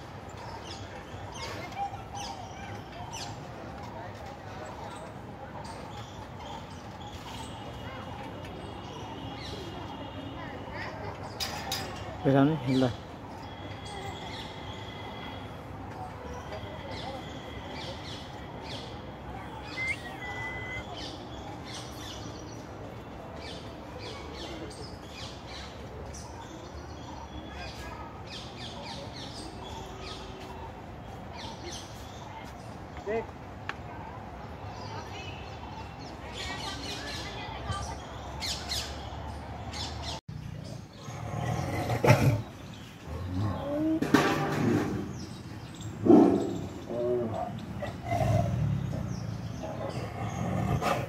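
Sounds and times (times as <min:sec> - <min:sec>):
birds chirping: 0:00.0 - 0:51.0
tiger growling: 0:40.9 - 0:45.2, 0:46.0 - 0:51.0.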